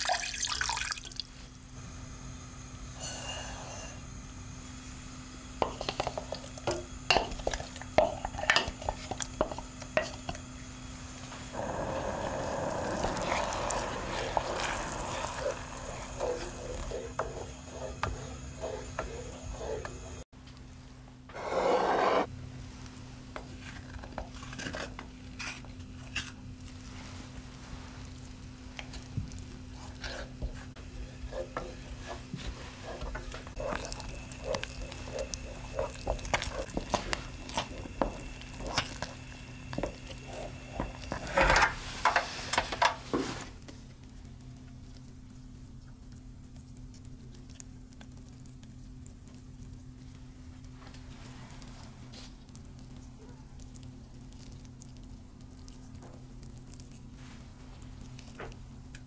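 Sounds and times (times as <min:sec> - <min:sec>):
steady hissing: 0:01.7 - 0:20.3, 0:26.8 - 0:43.6
wooden spoon stirring in saucepan: 0:05.6 - 0:10.5, 0:11.1 - 0:20.3, 0:26.8 - 0:44.0.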